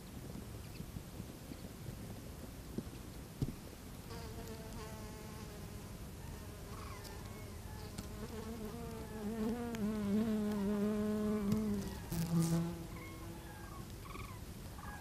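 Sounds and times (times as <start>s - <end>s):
hoverfly buzzing in flight: 7.8s - 13.5s.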